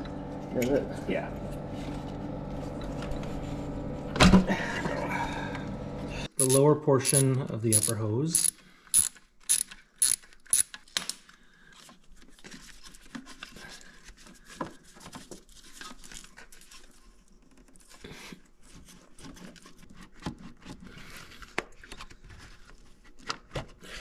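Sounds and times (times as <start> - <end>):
ratchet clicks: 6.4 - 10.8.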